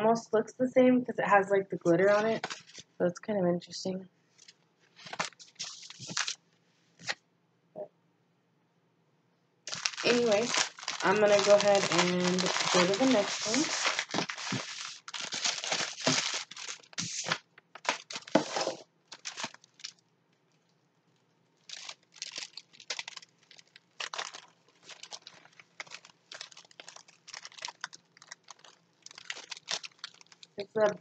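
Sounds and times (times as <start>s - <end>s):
plastic bag crinkling: 2.1s - 3.0s, 4.4s - 6.4s, 9.7s - 20.0s, 21.6s - 31.0s.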